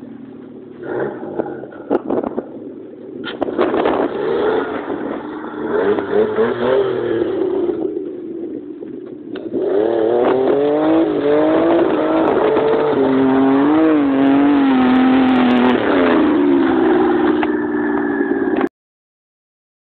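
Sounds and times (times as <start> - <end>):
buggy engine revving: 0.0 - 18.7.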